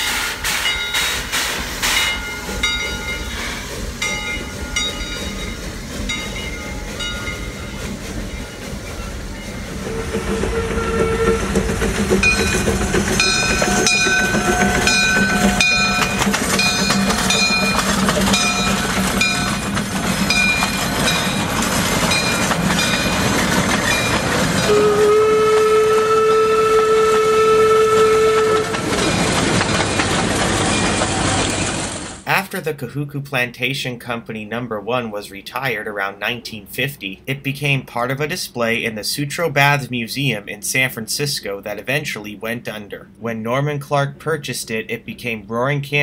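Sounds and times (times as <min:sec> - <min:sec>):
steam locomotive whistle: 0:00.0 - 0:02.2, 0:09.6 - 0:18.9, 0:24.1 - 0:29.1
locomotive engine running: 0:00.0 - 0:32.3
locomotive bell ringing: 0:00.6 - 0:01.3, 0:01.9 - 0:31.5.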